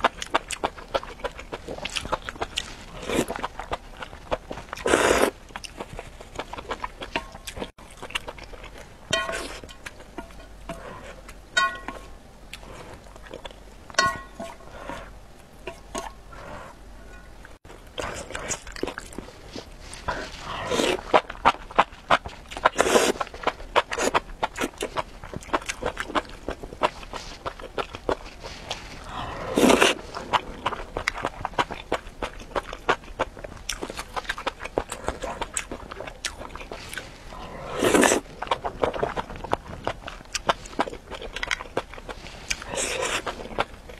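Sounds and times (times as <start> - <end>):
soft chewing: 0.0 - 43.9
chopsticks clinking on glass: 11.6 - 12.0
noodle slurp: 29.2 - 30.1.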